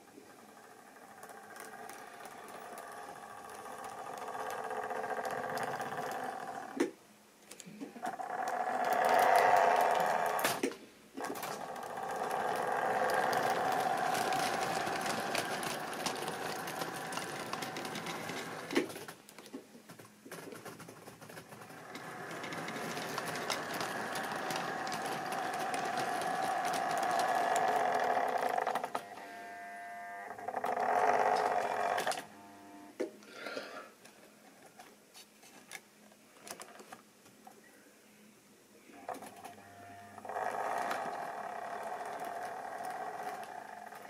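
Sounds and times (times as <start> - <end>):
model train motor whirring: 0.0 - 6.9, 8.0 - 19.1, 21.4 - 32.7, 40.2 - 44.0
sharp clicks of model train: 0.6 - 6.9, 8.3 - 29.0, 40.2 - 44.0.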